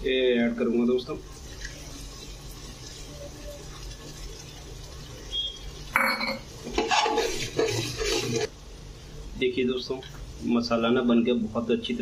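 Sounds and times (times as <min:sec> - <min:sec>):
ladle scraping a pot: 0:06.4 - 0:08.5.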